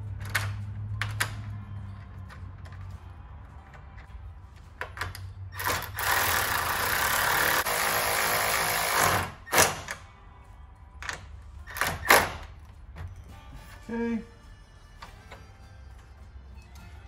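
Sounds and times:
cordless drill motor running: 5.6s - 9.3s.

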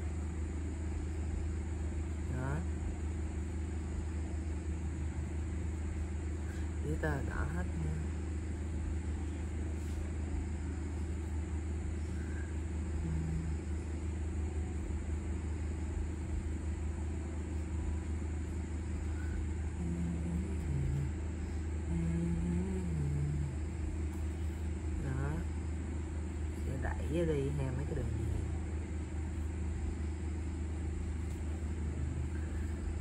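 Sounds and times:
low background rumble: 0.0s - 33.0s
faint murmuring voice: 19.1s - 21.3s.

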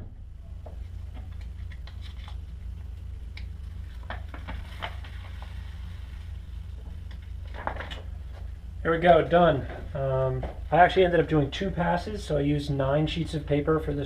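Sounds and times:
steady low hum: 0.0s - 14.0s
paper strips crackling and rustling: 1.1s - 8.5s.

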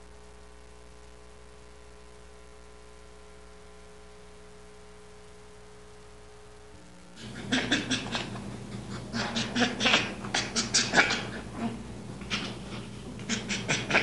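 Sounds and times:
faint hum: 0.0s - 14.0s
baby chimpanzee calling: 7.2s - 11.5s, 12.2s - 14.0s.

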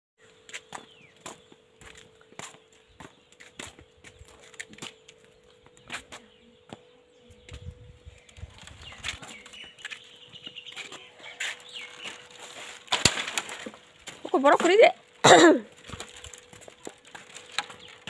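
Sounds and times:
footsteps: 0.3s - 15.0s, 15.6s - 18.0s
rustling: 8.2s - 18.0s.

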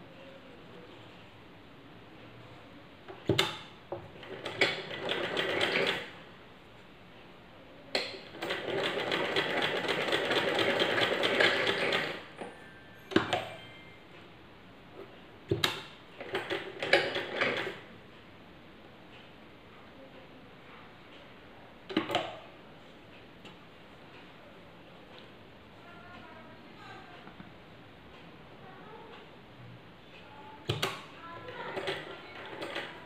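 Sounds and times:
sewing machine stitching: 3.2s - 6.2s, 8.2s - 12.4s, 15.5s - 17.8s, 30.7s - 33.0s.

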